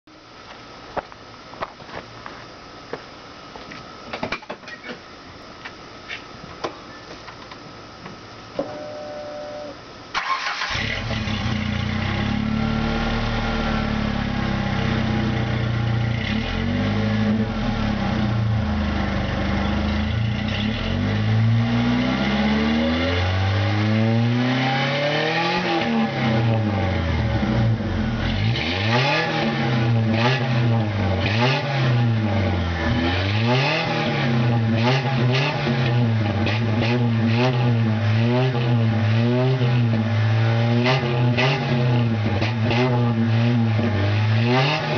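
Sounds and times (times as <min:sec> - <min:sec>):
car engine idling and revving: 0:10.2 - 0:44.9.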